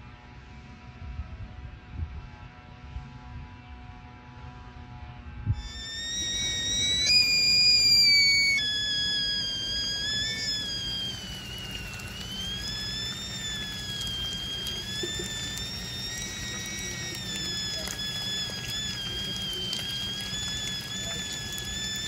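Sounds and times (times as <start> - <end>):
kettle whistling: 5.6 - 22.0.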